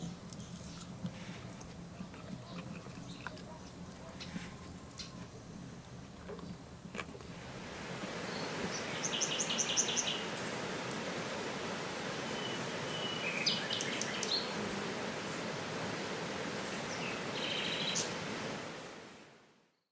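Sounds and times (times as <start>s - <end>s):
small birds chirping: 0.0s - 0.9s, 1.9s - 6.7s, 8.0s - 18.7s
steady background hiss: 0.0s - 19.9s.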